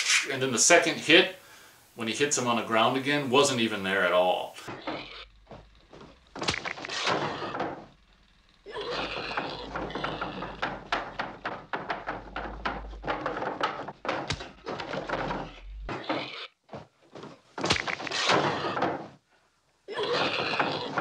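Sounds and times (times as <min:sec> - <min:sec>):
knocks thuds and scrapes: 0:04.6 - 0:08.1, 0:09.0 - 0:19.2
sharp knocks: 0:09.0 - 0:16.1, 0:17.6 - 0:19.2
low hum: 0:14.3 - 0:15.9.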